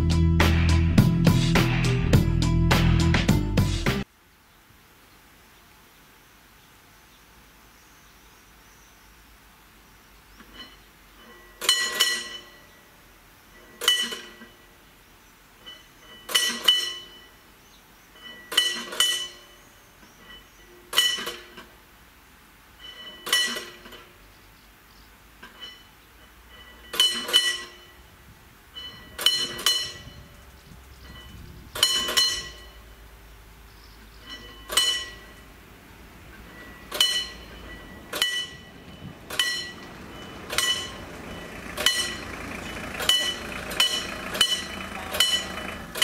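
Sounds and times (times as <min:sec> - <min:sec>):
level-crossing warning bell: 0:10.6 - 0:12.8, 0:15.6 - 0:17.4, 0:18.1 - 0:19.6, 0:22.8 - 0:23.6, 0:25.6 - 0:28.1, 0:28.7 - 0:33.1, 0:34.1 - 0:46.0.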